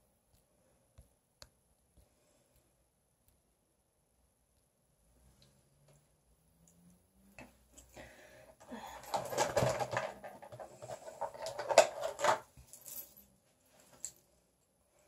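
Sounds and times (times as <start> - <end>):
small items rustling and clattering: 8.6 - 14.3.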